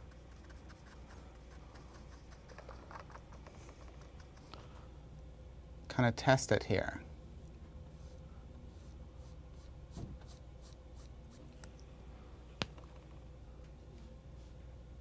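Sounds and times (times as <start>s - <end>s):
faint steady hum: 0.0s - 15.0s
paintbrush swishing on paper: 8.0s - 11.5s.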